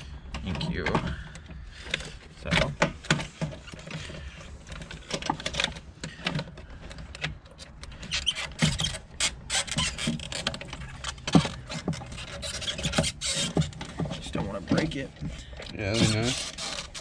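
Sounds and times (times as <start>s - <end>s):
plastic scraping and squeaking: 0.0s - 17.0s.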